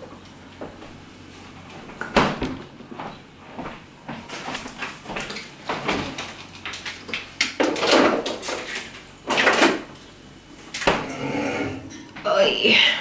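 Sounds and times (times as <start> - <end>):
items knocking and rattling: 1.8 - 9.9
refrigerator door opening: 10.8 - 11.9.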